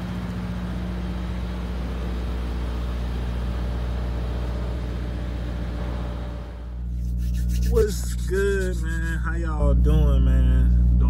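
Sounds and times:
diesel truck engine idling: 0:00.0 - 0:07.0.

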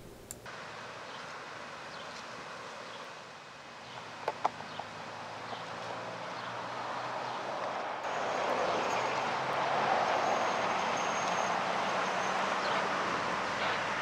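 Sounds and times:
outdoor background hiss: 0:00.0 - 0:05.5.

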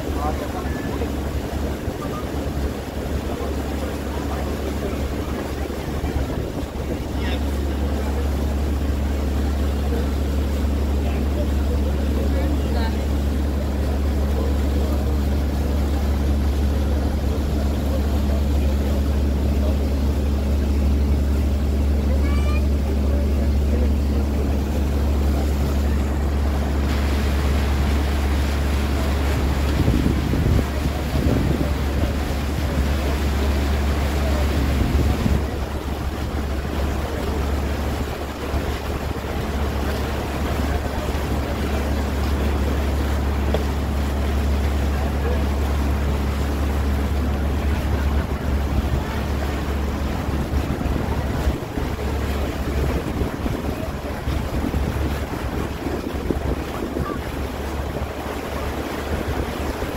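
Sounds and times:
boat engine humming: 0:00.0 - 0:59.9
water rushing past hull: 0:00.0 - 0:59.9
wind on microphone: 0:25.8 - 0:41.2, 0:47.4 - 0:59.9.

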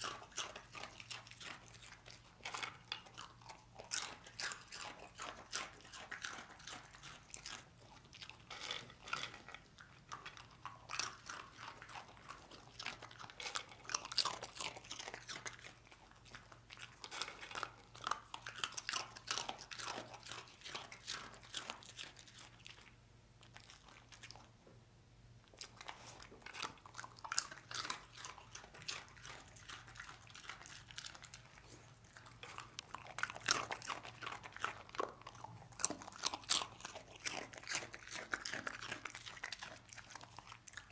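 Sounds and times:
dog crunching snacks: 0:00.0 - 0:24.6, 0:25.4 - 0:40.9.

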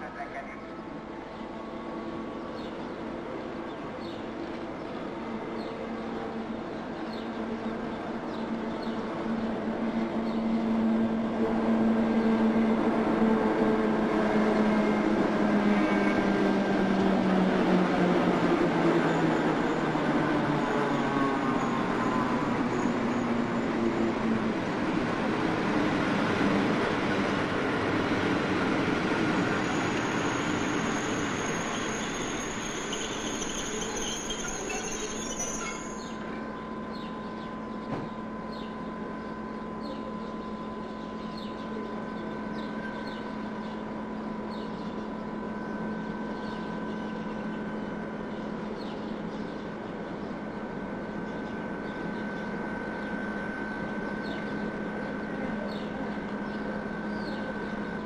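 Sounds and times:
standing train humming: 0:00.0 - 0:58.0
train rolling slowly: 0:00.0 - 0:58.0
high brake squeal: 0:29.6 - 0:36.2.

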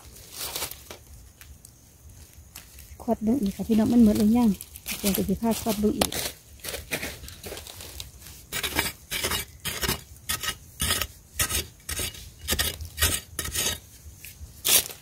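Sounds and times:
digging blade scraping sandy soil: 0:05.7 - 0:15.0.

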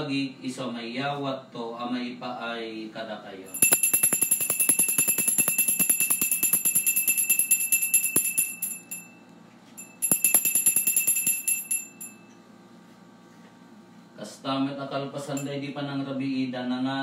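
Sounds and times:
bells jingling: 0:03.5 - 0:09.1, 0:09.8 - 0:12.3.

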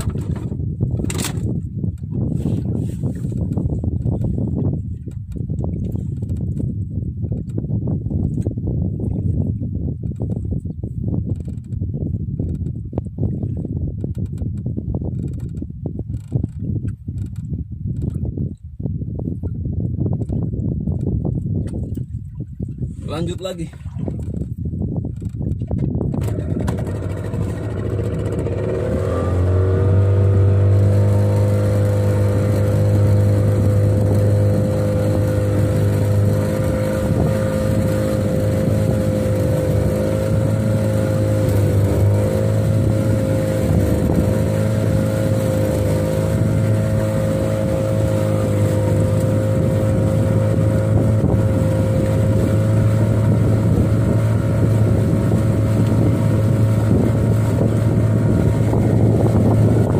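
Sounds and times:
outboard motor throttling up: 0:00.0 - 0:10.6, 0:23.1 - 0:59.9.

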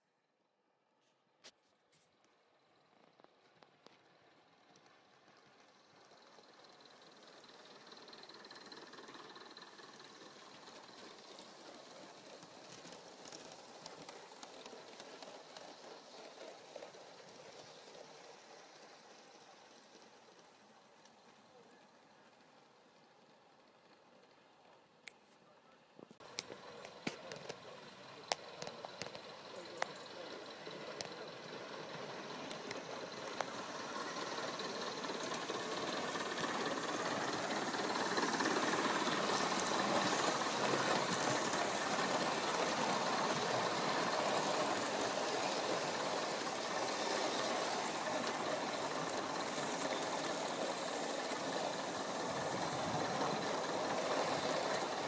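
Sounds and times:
wheels clicking on track: 0:02.2 - 0:55.0
model steam locomotive exhaust beats: 0:02.5 - 0:25.2, 0:25.8 - 0:55.0
steam hissing: 0:29.2 - 0:55.0.

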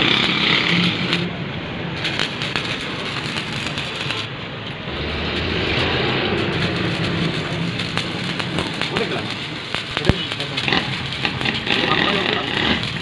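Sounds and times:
welding arc crackling: 0:00.0 - 0:13.0
low hum: 0:00.2 - 0:10.0.

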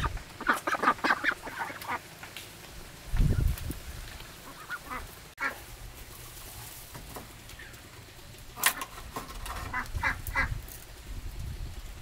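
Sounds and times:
ducks quacking: 0:00.0 - 0:02.1, 0:04.4 - 0:05.6, 0:09.6 - 0:10.6.

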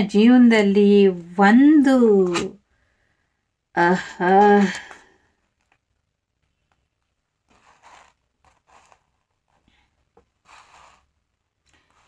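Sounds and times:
cards swishing on cloth: 0:10.4 - 0:11.1.

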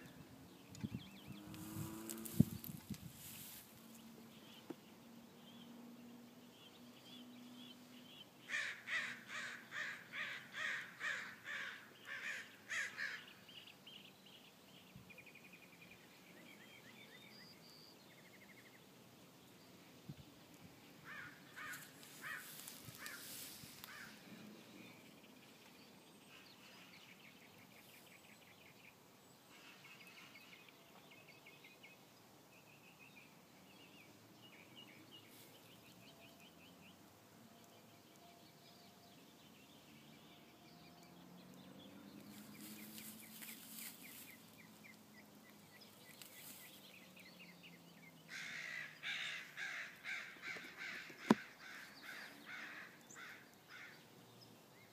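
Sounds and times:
harsh bird calls: 0:08.4 - 0:13.4, 0:21.0 - 0:24.4, 0:47.4 - 0:54.1.

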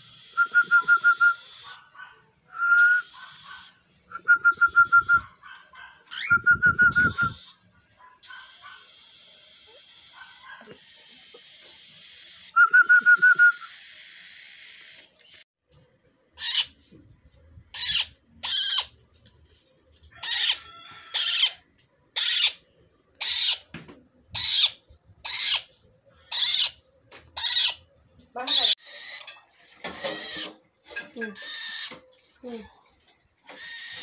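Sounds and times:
parrot chick raspy calls: 0:20.2 - 0:21.6, 0:24.4 - 0:25.7.

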